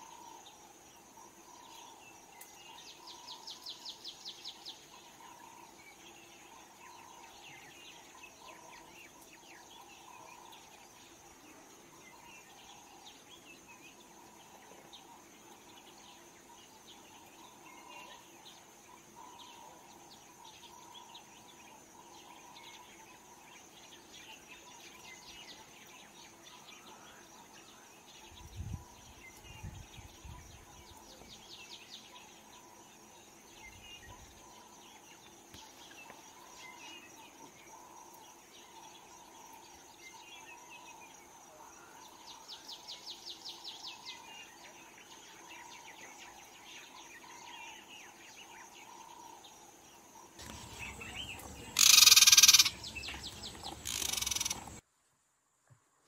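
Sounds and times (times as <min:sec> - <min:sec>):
insect hum: 0:00.0 - 0:56.0
birds chirping: 0:50.4 - 0:54.8
fast insect-like trilling: 0:50.4 - 0:54.8.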